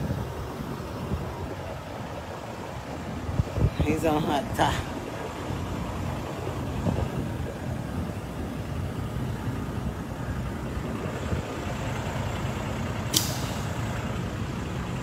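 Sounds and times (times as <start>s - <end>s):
diesel truck engine idling: 0.0s - 15.0s
sharp click: 13.1s - 13.5s.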